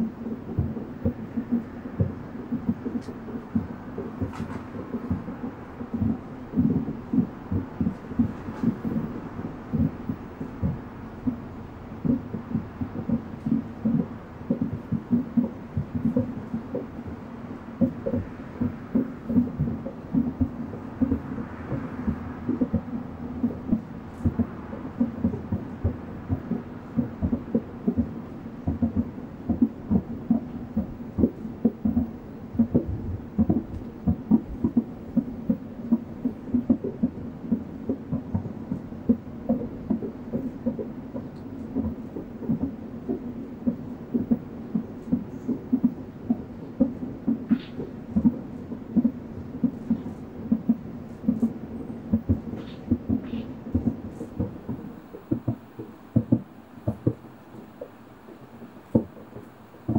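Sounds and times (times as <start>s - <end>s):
fireworks booming and popping: 39.1s - 59.9s.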